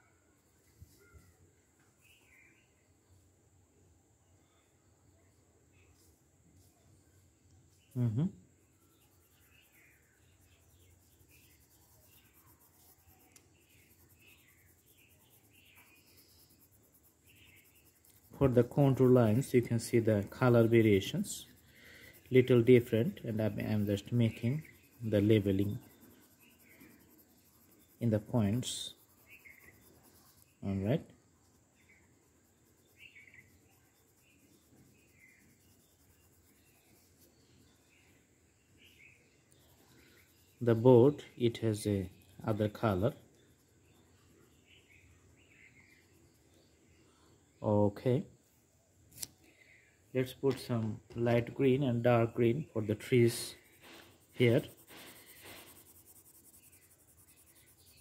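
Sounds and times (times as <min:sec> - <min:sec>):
faint high chirps: 0:00.0 - 0:03.3, 0:04.2 - 0:48.2
pencil scratching on paper: 0:08.9 - 0:30.6, 0:32.2 - 0:37.6, 0:39.6 - 0:44.0, 0:53.0 - 0:58.0.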